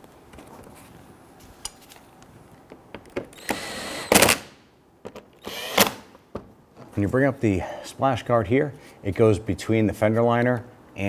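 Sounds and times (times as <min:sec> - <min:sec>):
cordless power driver whining: 0:03.3 - 0:04.4, 0:05.4 - 0:06.1.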